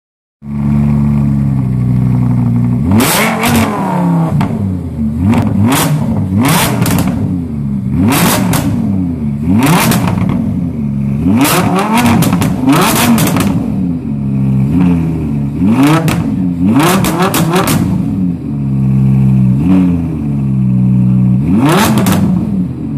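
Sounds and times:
car engine idling and revving: 0.4s - 22.9s.

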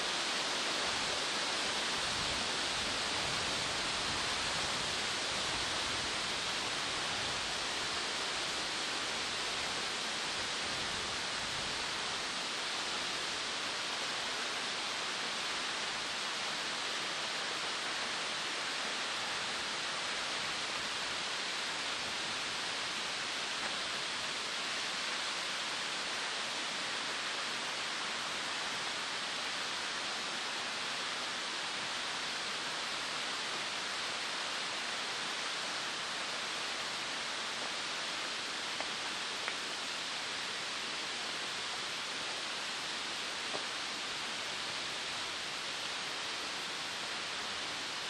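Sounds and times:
steady rushing hiss: 0.0s - 48.0s
faint ticks: 38.8s - 39.7s.

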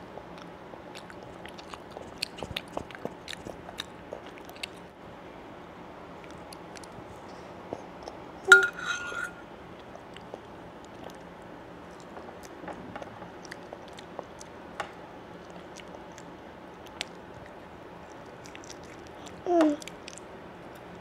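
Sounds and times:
toddler chewing: 0.4s - 4.8s, 15.4s - 20.9s
loud clink: 8.5s - 9.4s.

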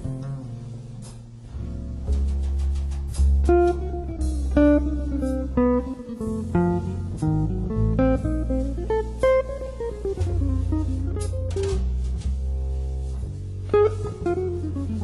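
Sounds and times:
low bass line: 0.0s - 15.0s
plucked guitar melody: 0.0s - 15.0s.

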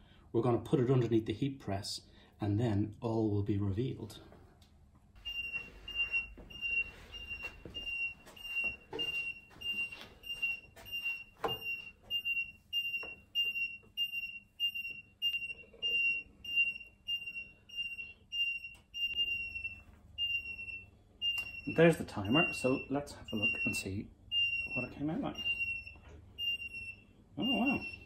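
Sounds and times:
high-pitched timer beeping: 5.2s - 19.6s, 20.2s - 28.0s.

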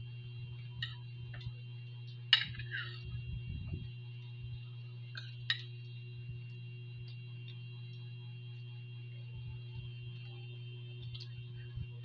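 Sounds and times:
low electrical hum: 0.0s - 12.0s
metal spoon scraping ceramic plate: 2.4s - 3.0s.

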